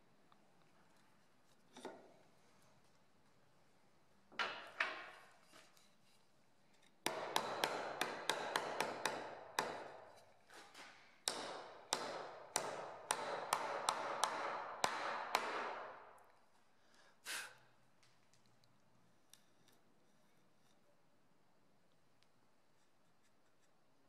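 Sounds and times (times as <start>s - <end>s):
hammer tapping a nail: 7.0s - 10.2s, 11.2s - 16.1s.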